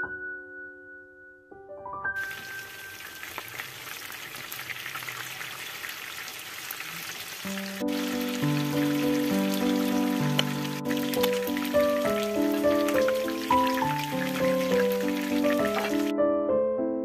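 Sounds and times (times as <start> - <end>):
soft piano music: 0.0 - 3.4, 7.5 - 17.0
chicken sizzling in hot oil: 2.2 - 16.1.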